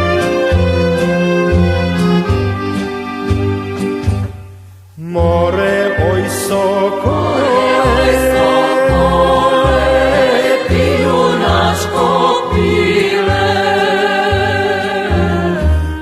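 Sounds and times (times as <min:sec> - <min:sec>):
folk band accompaniment: 0:00.0 - 0:16.0
person singing with vibrato: 0:05.0 - 0:16.0.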